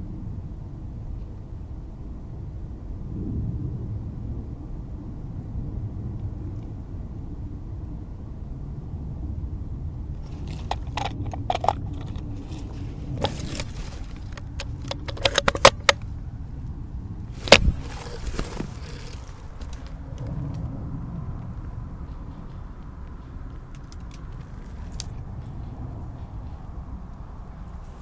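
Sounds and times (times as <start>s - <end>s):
low rumble: 0.0s - 28.0s
gear clicking and jangling: 10.2s - 16.0s, 17.4s - 20.3s
brush rustling: 10.2s - 16.1s, 17.2s - 20.1s.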